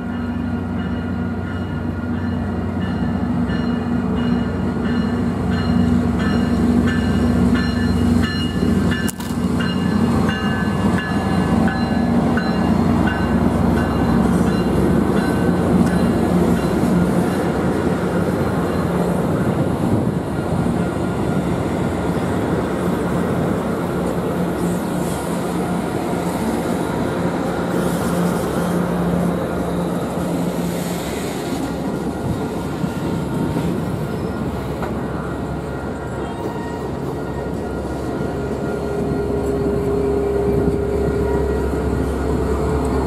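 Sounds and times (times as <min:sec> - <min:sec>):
train cars rumbling on rails: 0:00.0 - 0:43.0.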